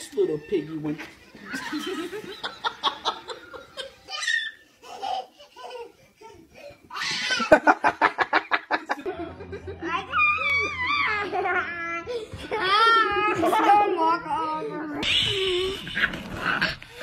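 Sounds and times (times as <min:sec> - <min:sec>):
people laughing: 0:01.2 - 0:04.3, 0:07.1 - 0:14.0.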